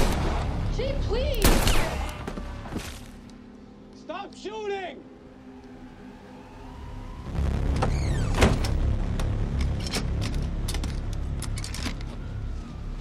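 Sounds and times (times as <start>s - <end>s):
low rumble: 5.2s - 12.5s
door creaking: 7.7s - 8.8s.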